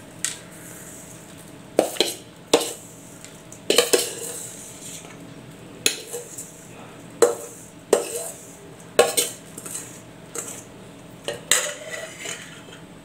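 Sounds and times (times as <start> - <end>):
metal spoon scraping steel bowl: 3.7 - 5.1, 5.9 - 10.7, 11.3 - 12.8.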